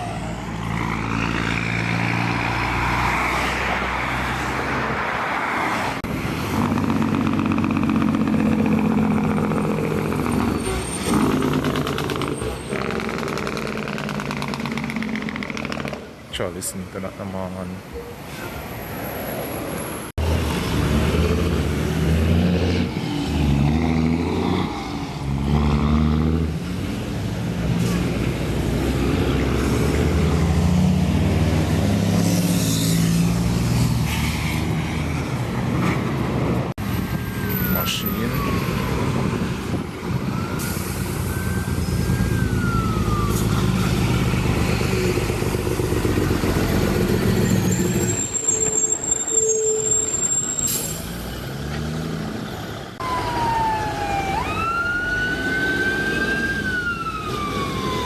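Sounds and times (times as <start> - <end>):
diesel truck engines revving: 0.0 - 58.0
siren-like wail: 37.4 - 44.5, 53.0 - 58.0.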